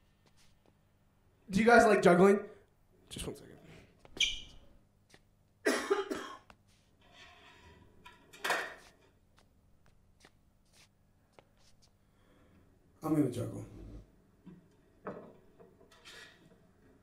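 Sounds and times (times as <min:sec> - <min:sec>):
person coughing: 0:05.6 - 0:06.5.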